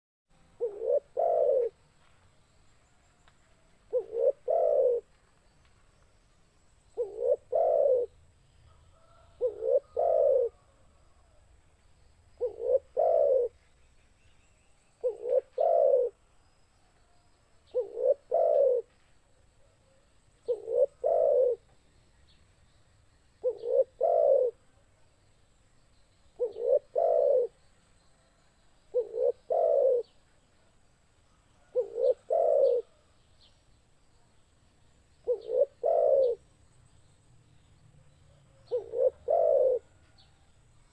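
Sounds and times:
dove cooing: 0:00.6 - 0:01.8, 0:03.9 - 0:05.1, 0:07.0 - 0:08.2, 0:09.0 - 0:10.8, 0:12.4 - 0:13.6, 0:15.0 - 0:16.2, 0:17.7 - 0:18.9, 0:20.4 - 0:21.6, 0:23.4 - 0:24.6, 0:26.4 - 0:27.6, 0:28.9 - 0:30.2, 0:31.6 - 0:33.1, 0:35.2 - 0:36.4, 0:38.3 - 0:40.0.

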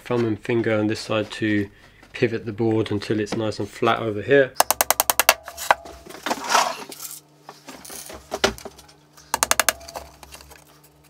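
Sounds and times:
hammer tapping a nail: 0:04.6 - 0:06.0, 0:09.4 - 0:10.2.

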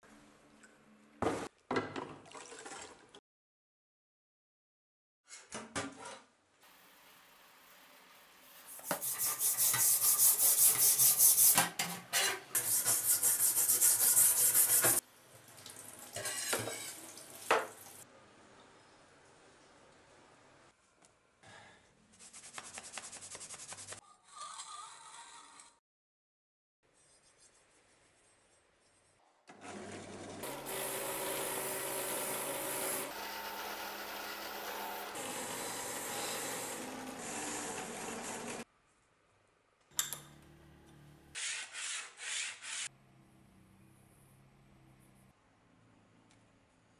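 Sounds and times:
scrubbing blade in a sink: 0:08.8 - 0:15.0.

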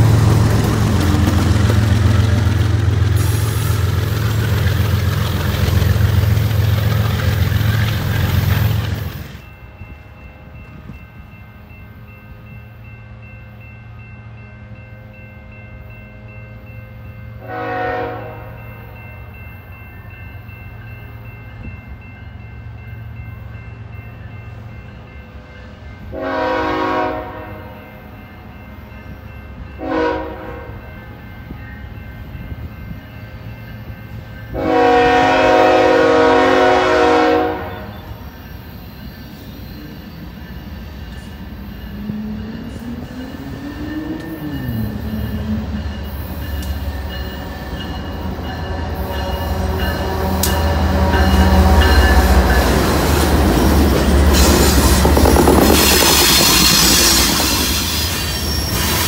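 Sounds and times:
locomotive engine rumble: 0:00.0 - 0:09.5, 0:39.6 - 0:59.0
train wheel noise: 0:00.0 - 0:11.4, 0:32.1 - 0:59.0
train horn blasts: 0:17.4 - 0:18.6, 0:26.1 - 0:27.9, 0:29.8 - 0:30.9, 0:34.5 - 0:38.2.

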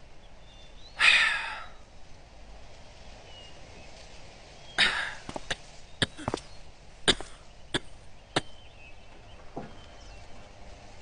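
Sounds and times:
person exhaling breathily: 0:01.0 - 0:01.8, 0:04.8 - 0:05.3.

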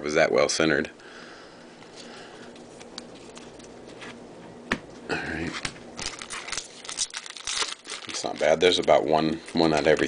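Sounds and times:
foil pack crinkling: 0:02.0 - 0:04.2, 0:06.0 - 0:10.0.

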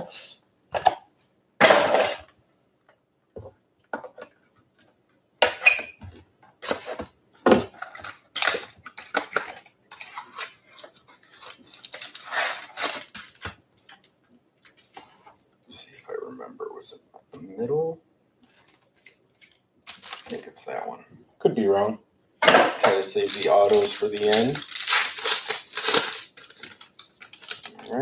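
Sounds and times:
foil packs crinkling: 0:07.7 - 0:14.0, 0:18.4 - 0:20.6, 0:23.0 - 0:28.0.

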